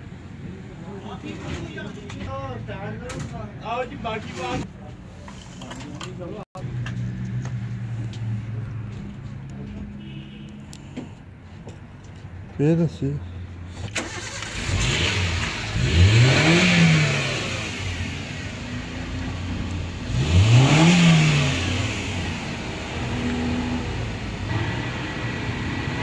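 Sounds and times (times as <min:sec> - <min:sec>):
vehicle engine revving: 0:13.7 - 0:26.0.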